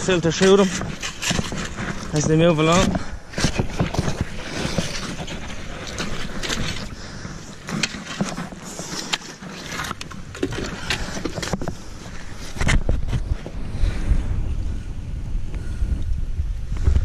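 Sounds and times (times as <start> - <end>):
shovel digging in wet mud: 0.3 - 11.6
boots squelching in mud: 0.3 - 12.6
wind on microphone: 9.8 - 17.0.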